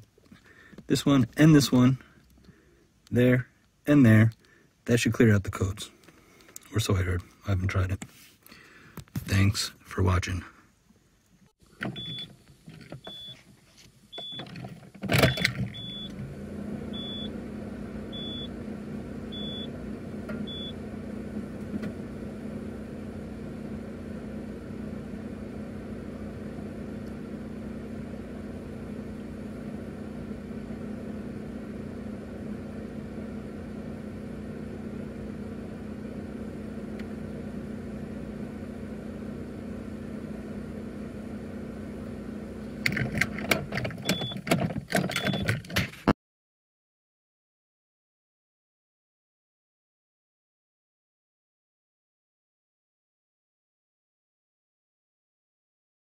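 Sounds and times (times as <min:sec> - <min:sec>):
low car hum: 0:09.3 - 0:45.7
car warning chime beeping: 0:12.0 - 0:12.3, 0:13.1 - 0:13.4, 0:15.3 - 0:16.2, 0:16.9 - 0:17.4, 0:18.1 - 0:18.5, 0:19.3 - 0:19.7, 0:20.4 - 0:20.8, 0:44.0 - 0:44.4
sharp clicks and knocks: 0:42.8 - 0:46.1.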